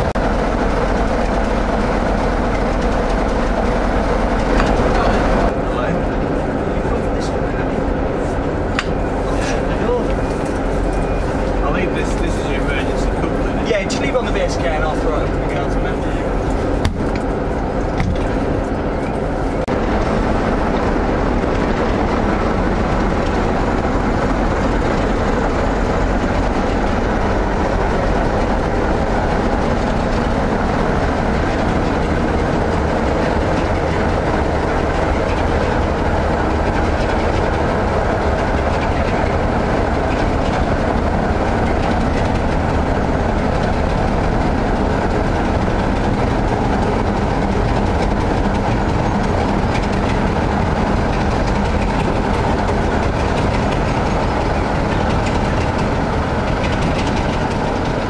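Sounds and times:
diesel locomotive engine running: 0.0s - 58.0s.

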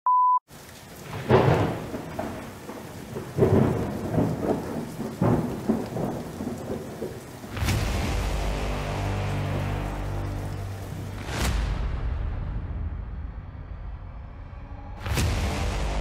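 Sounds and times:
steady rain: 0.5s - 12.0s
thunder rumbling: 0.5s - 13.3s.

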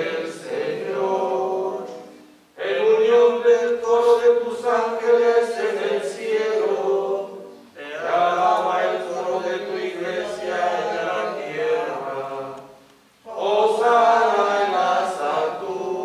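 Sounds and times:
man chanting: 2.6s - 5.2s.

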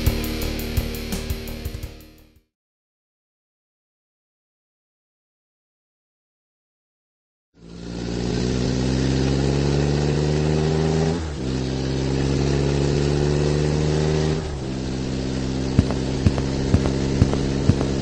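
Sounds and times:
car engine running: 7.6s - 18.0s.

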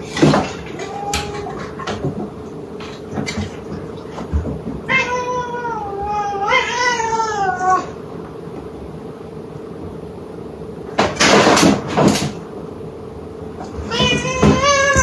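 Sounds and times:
cat meowing: 4.8s - 8.0s, 13.7s - 15.0s.

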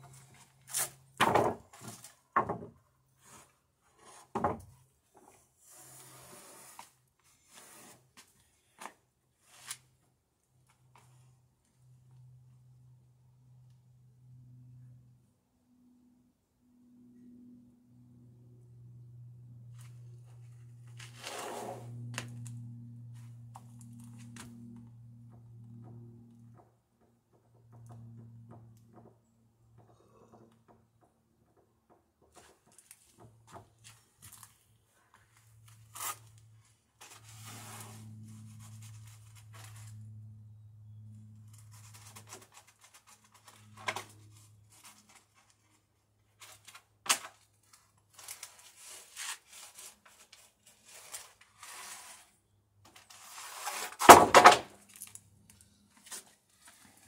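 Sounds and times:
wooden boards knocking and scraping: 1.2s - 2.8s, 4.0s - 4.7s, 53.8s - 54.8s.

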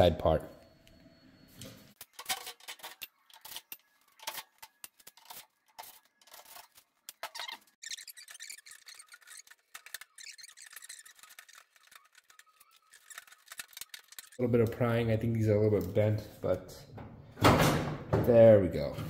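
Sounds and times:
screwdriver scraping sheet metal: 2.0s - 14.6s.

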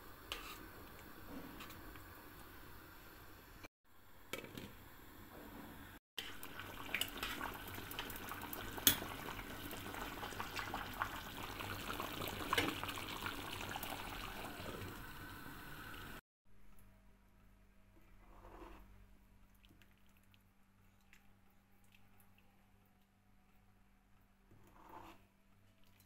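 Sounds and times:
soup bubbling in a pot: 6.2s - 16.2s.

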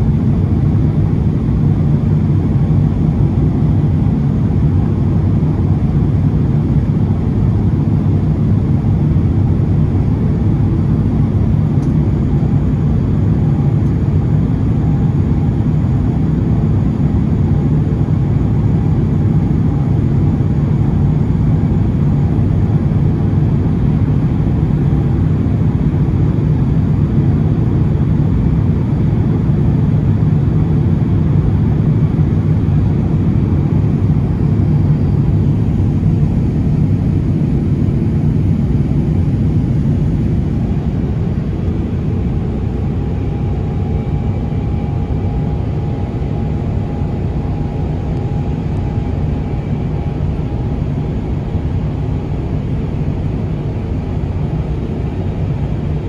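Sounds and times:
jet engine drone in cabin: 0.0s - 56.0s.

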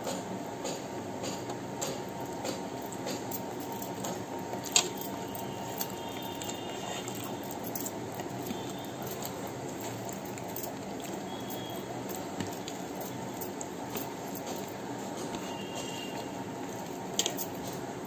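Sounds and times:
steady background noise: 0.0s - 18.0s
chewing: 3.9s - 17.7s.

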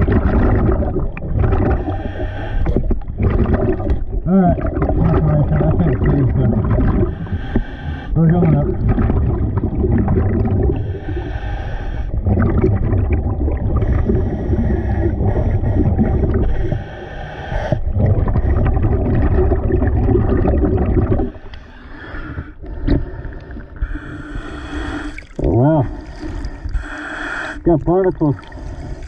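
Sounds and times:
rumble of exhaled bubbles: 0.0s - 21.6s, 22.4s - 26.8s
scuba regulator hissing breaths: 1.8s - 2.9s, 7.1s - 8.2s, 10.7s - 12.2s, 21.3s - 25.3s, 25.9s - 27.6s
light water sounds: 20.2s - 29.0s.

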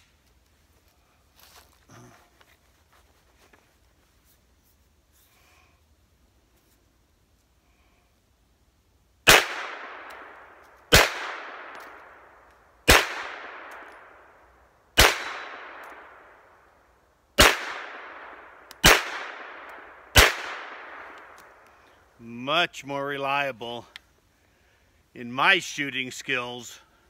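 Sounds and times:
gunshots with echo: 9.3s - 11.8s, 12.9s - 14.1s, 15.0s - 16.2s, 17.4s - 21.2s.

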